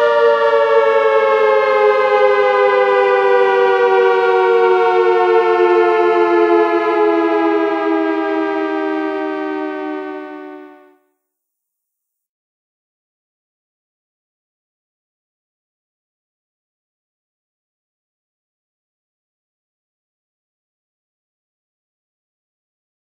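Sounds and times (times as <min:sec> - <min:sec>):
dual-tone siren falling in pitch: 0:00.0 - 0:11.0.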